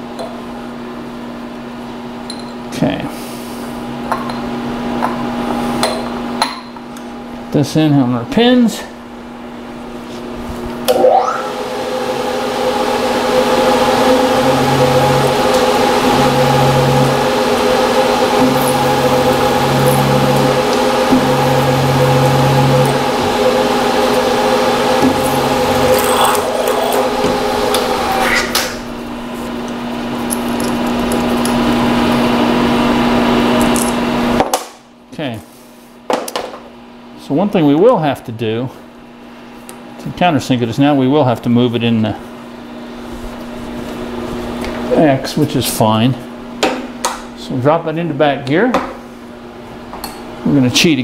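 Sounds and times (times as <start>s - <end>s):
low hum: 10.8s - 32.2s
milling machine motor whining: 10.8s - 33.8s
drill bit drilling copper: 13.7s - 28.5s.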